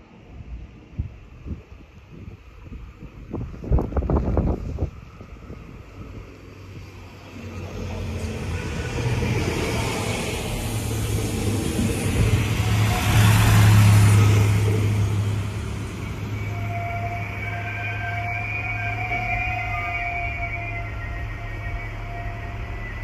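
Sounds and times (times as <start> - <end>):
train engine hum: 0.0 - 23.0
high-pitched whine: 7.3 - 23.0.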